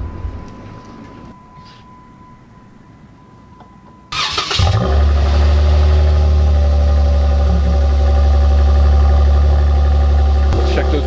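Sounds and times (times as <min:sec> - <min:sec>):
engine cranking: 0:04.1 - 0:05.2
car engine idling: 0:04.1 - 0:11.0.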